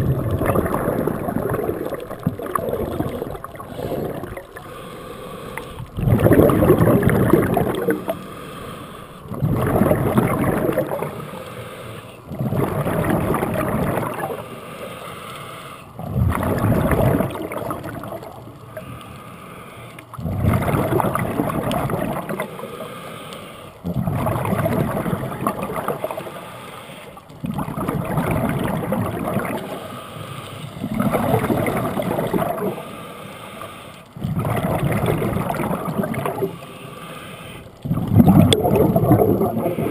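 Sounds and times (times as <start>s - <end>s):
diver exhaling bubbles underwater: 0.0s - 8.5s, 9.2s - 11.3s, 12.3s - 14.5s, 16.0s - 18.9s, 20.1s - 22.7s, 23.8s - 26.4s, 27.3s - 30.0s, 30.8s - 32.8s, 34.2s - 36.6s, 37.8s - 39.9s.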